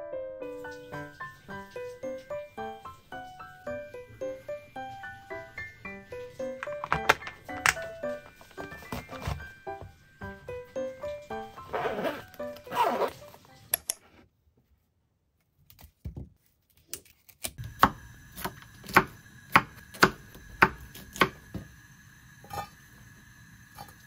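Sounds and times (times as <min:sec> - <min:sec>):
bag zipper closing: 0:11.6 - 0:13.4
knife chopping on wooden board: 0:17.8 - 0:21.4.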